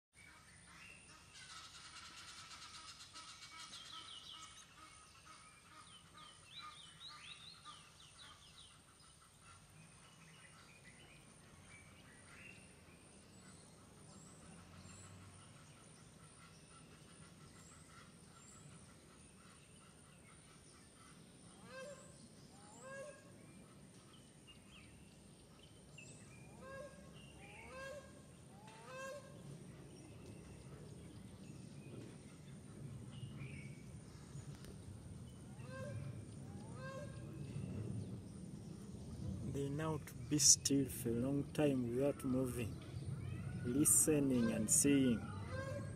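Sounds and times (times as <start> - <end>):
low outdoor hum: 7.6 - 45.9
honk-like bird calls: 26.6 - 29.4, 35.5 - 37.4, 43.7 - 45.9.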